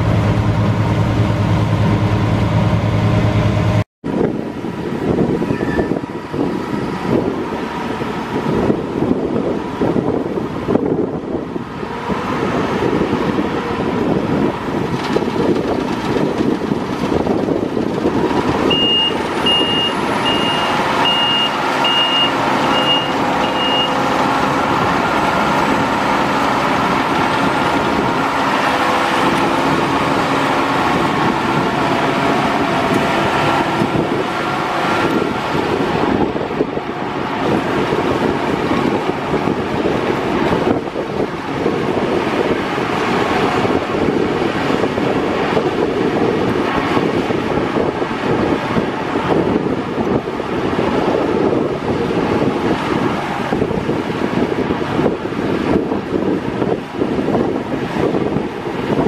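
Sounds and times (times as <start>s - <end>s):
combine harvester running: 0.0s - 59.0s
reversing alarm beeping: 18.7s - 24.0s.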